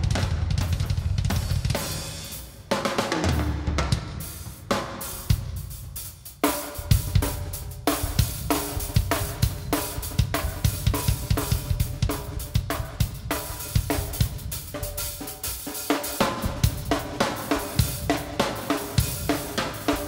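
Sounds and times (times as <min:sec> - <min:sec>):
snare drum: 0:00.0 - 0:05.6, 0:06.3 - 0:20.0
bass drum strokes: 0:06.8 - 0:14.9, 0:16.2 - 0:19.4.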